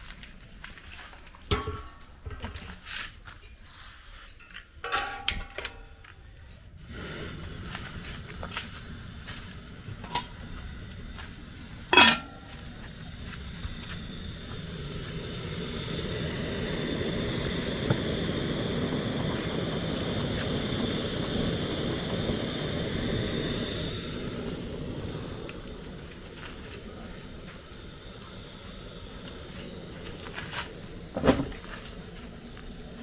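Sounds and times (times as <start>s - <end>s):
gas burner flame rushing: 5.1s - 33.0s
pot lid clanking: 11.9s - 12.3s.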